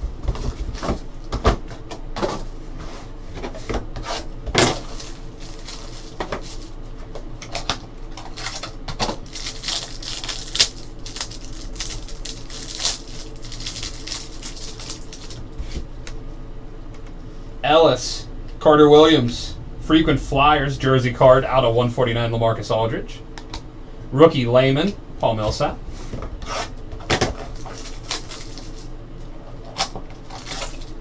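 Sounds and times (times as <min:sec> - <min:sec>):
plastic and foil crinkling: 0:04.7 - 0:06.8, 0:07.6 - 0:15.8, 0:27.4 - 0:28.9, 0:29.7 - 0:31.0.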